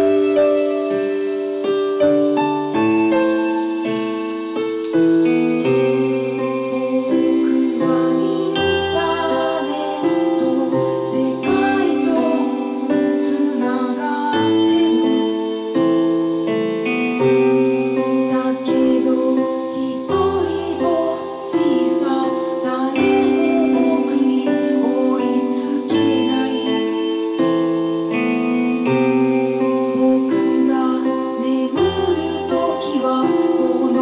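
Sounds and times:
electronic keyboard chords: 0.0 - 34.0
woman singing: 5.6 - 15.8, 17.7 - 28.1, 28.7 - 34.0.

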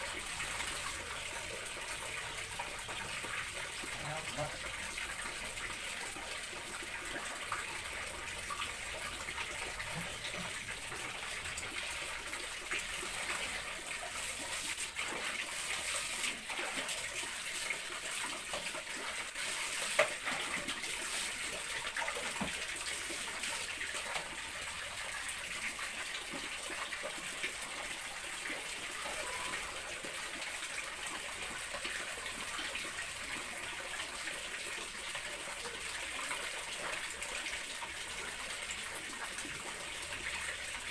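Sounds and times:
water running from tap: 0.0 - 40.9.

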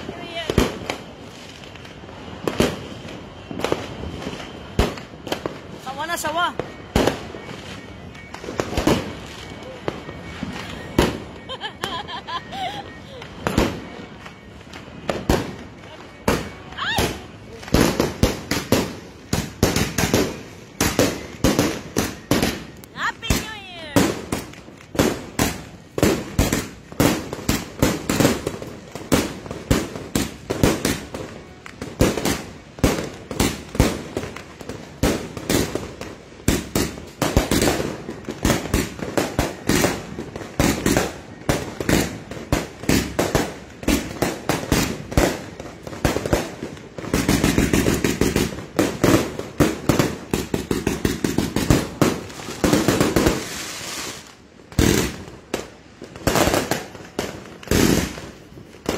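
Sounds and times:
fireworks firing: 0.0 - 58.9.

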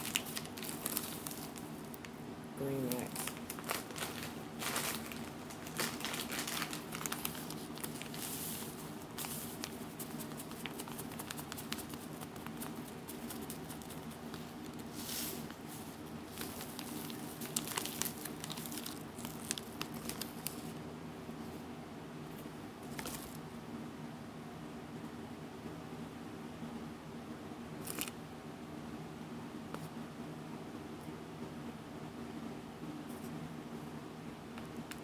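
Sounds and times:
plastic bags crinkling: 0.0 - 2.1, 2.8 - 20.8
steady low hum: 0.0 - 35.0.

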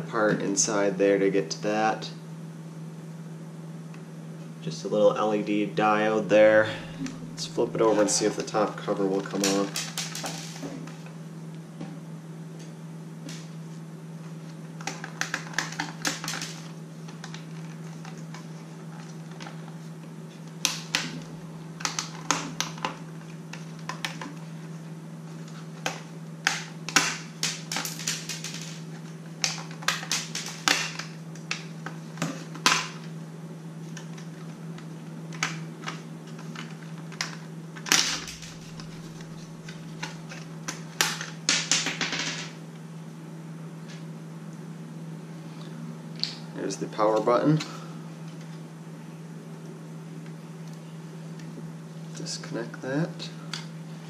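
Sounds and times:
low hum: 6.1 - 14.6, 19.8 - 23.9, 37.9 - 40.7.

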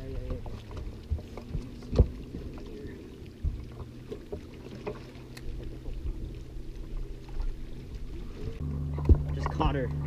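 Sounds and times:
low steady hum: 0.0 - 10.0
knocks and thumps on boat deck: 0.1 - 2.7, 3.4 - 5.1, 8.6 - 10.0.

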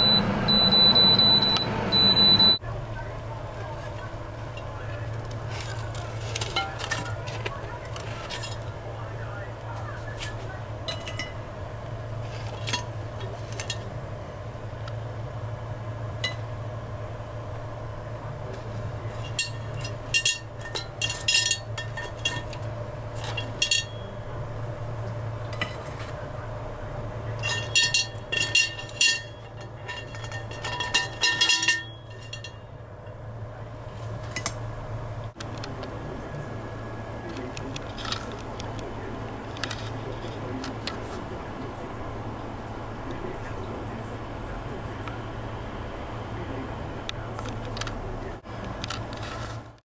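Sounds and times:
steady low hum: 0.0 - 49.8
metal rack clinking on glass: 19.2 - 22.6, 23.2 - 24.1, 27.4 - 32.7.

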